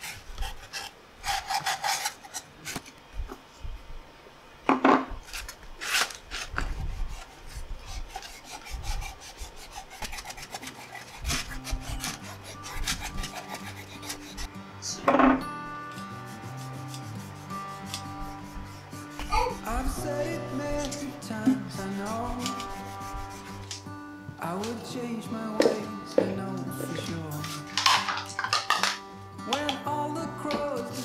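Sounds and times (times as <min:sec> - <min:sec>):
cloth scrubbing on wood: 0:00.0 - 0:02.4, 0:05.8 - 0:14.5, 0:16.0 - 0:23.8
soft background music: 0:10.8 - 0:31.0.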